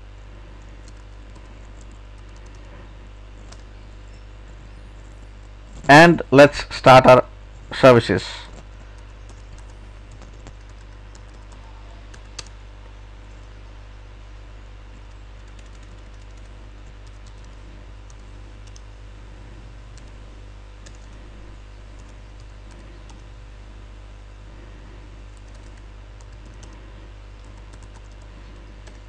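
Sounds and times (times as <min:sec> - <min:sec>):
steady low hum: 0:00.0 - 0:29.0
keyboard keys tapping: 0:27.4 - 0:29.0.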